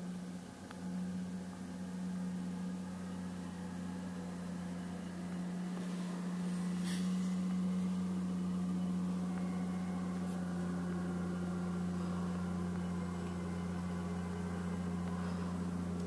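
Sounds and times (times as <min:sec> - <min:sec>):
diesel engine droning: 0:00.0 - 0:16.0.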